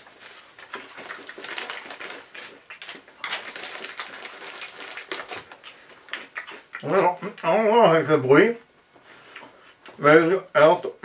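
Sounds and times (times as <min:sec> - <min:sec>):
plastic snack bag crinkling: 0:00.0 - 0:06.0.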